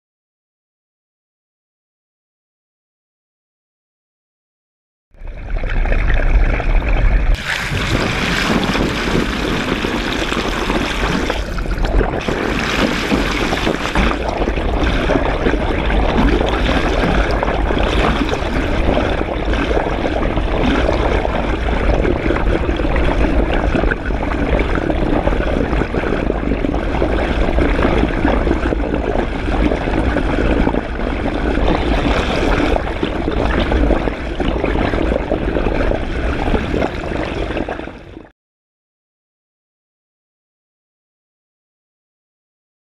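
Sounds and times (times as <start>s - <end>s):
deep rumble: 5.2s - 38.0s
underwater water rushing: 5.2s - 38.3s.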